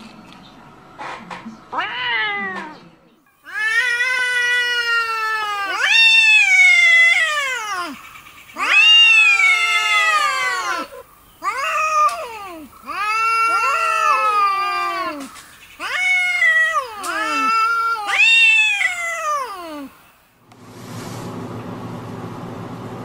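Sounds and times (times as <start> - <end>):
cat caterwauling: 1.7 - 2.8, 3.4 - 8.0, 8.6 - 20.0.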